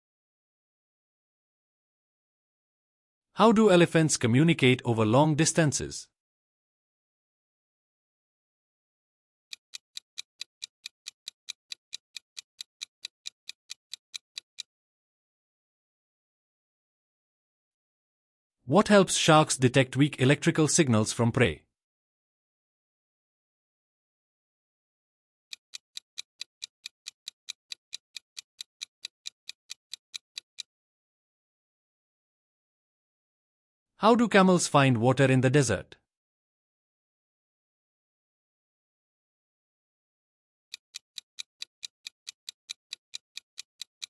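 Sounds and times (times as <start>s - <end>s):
rapid clock-like ticks: 9.5s - 14.7s, 25.5s - 30.7s, 40.7s - 44.0s.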